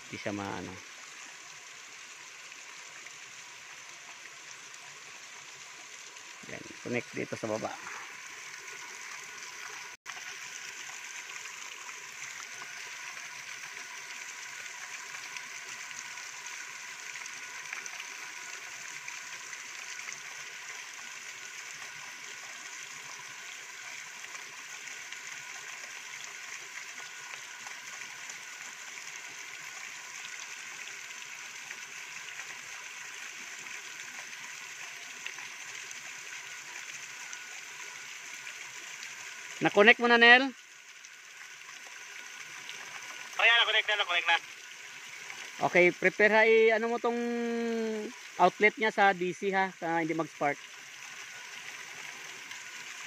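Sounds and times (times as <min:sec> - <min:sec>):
creek water rushing: 0:00.0 - 0:53.0.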